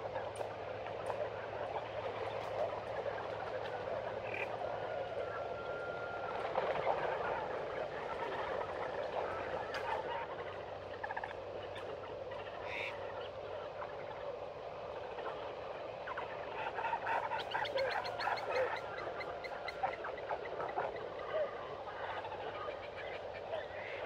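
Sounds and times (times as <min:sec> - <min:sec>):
animal clucks and chirps: 0:16.1 - 0:24.0.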